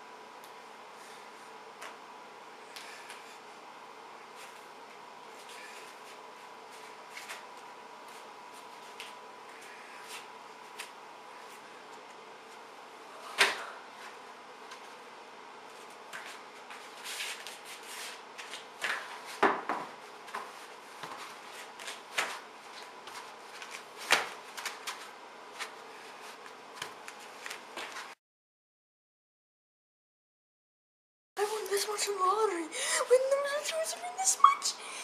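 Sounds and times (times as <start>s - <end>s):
feet shuffling and scraping: 15.8s - 19.4s, 20.2s - 28.2s.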